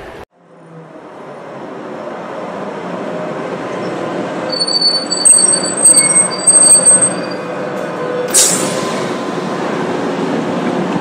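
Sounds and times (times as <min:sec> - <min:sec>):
tram rumbling on rails: 0:00.0 - 0:11.0
wheels squealing on rails: 0:03.1 - 0:10.9.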